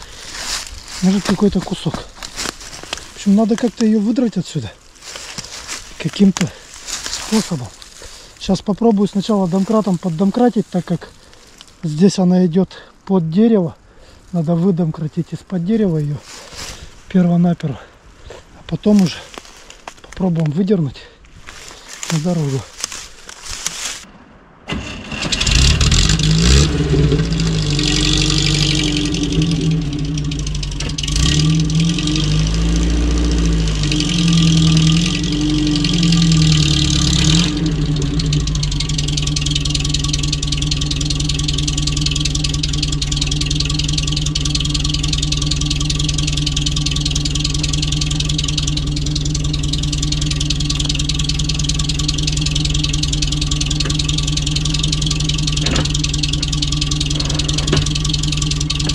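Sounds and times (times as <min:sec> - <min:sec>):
off-road vehicle engine revving: 0:00.0 - 0:12.2, 0:24.7 - 0:58.9.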